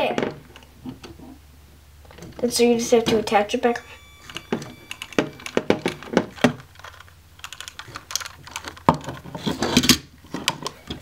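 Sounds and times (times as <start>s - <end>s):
plastic parts clicking and knocking: 4.2s - 11.0s.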